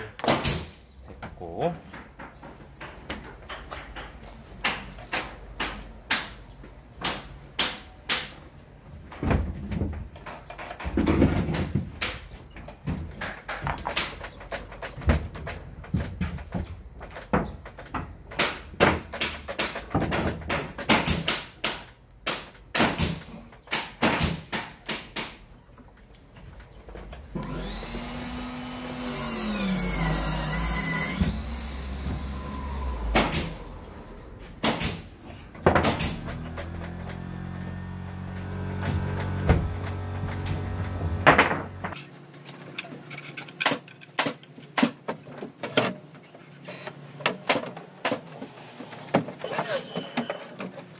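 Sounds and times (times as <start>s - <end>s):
hand tools clicking and knocking: 1.2s - 6.4s, 10.0s - 28.1s.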